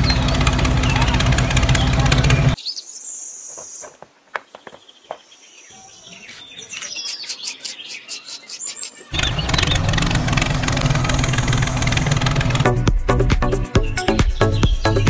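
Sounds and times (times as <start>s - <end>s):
gravel clicking: 6.2s - 12.8s.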